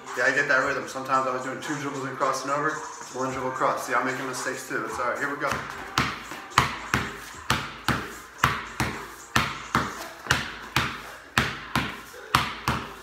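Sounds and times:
basketball bouncing on concrete: 5.0s - 13.0s.

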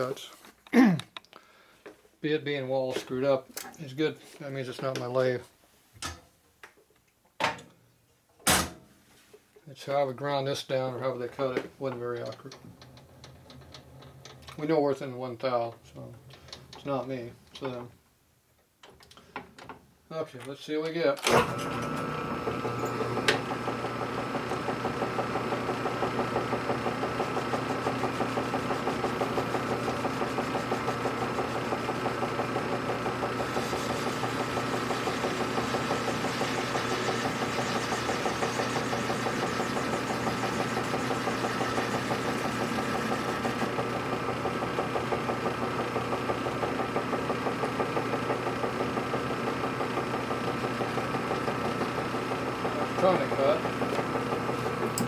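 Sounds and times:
metal lathe running: 21.4s - 55.0s.

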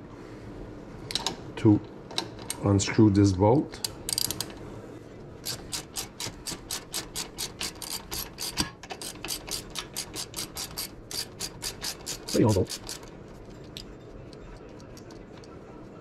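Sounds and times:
ratchet pawl clicking: 3.8s - 4.5s, 5.4s - 13.1s.

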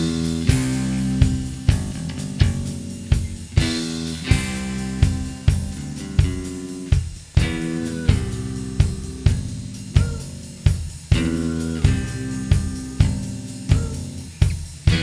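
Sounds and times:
electric guitar and bass chords: 0.0s - 15.0s
heavy drum kit beat: 0.0s - 15.0s.

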